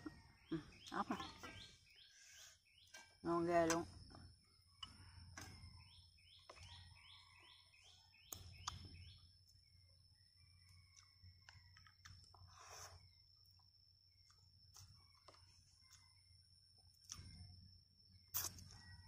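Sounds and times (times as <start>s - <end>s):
bird chirping: 0.0s - 13.2s.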